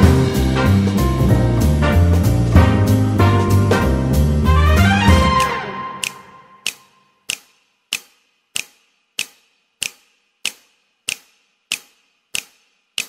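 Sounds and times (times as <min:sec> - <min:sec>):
sharp ticks: 0:05.4 - 0:13.0.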